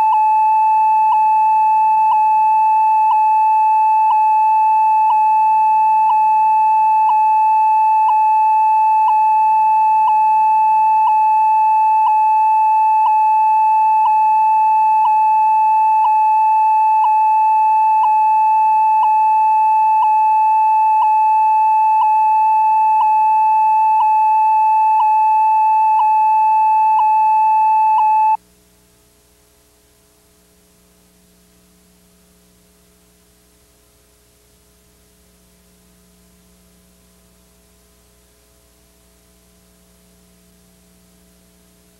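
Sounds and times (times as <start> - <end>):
steady high beep tone: 0.0 - 28.4
faint hum: 0.0 - 41.9.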